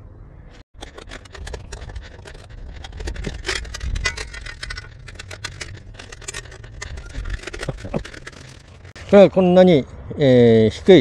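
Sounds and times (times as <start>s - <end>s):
folding table clicks and rattles: 0.8s - 9.0s.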